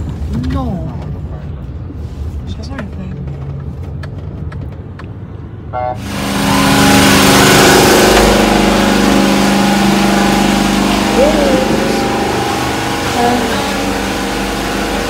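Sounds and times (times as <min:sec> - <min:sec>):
road rumble in car cabin: 0:00.0 - 0:05.6
running engine hum: 0:00.0 - 0:15.0.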